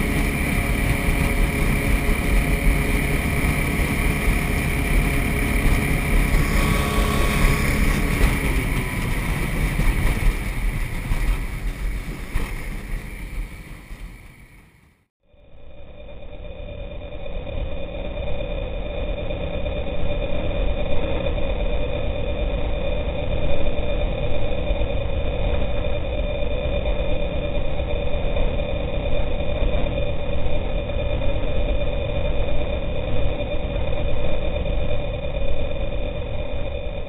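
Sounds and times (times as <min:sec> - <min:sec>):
boat motor droning: 0:00.0 - 0:14.9.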